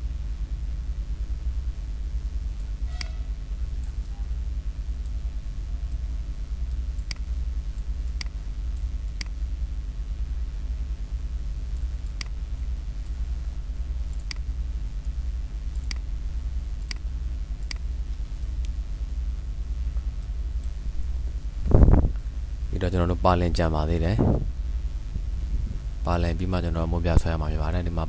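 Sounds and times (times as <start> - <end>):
steady low hum: 0.0 - 28.0
computer mouse clicking: 6.6 - 9.4, 11.8 - 12.4, 14.1 - 16.1, 16.8 - 18.8.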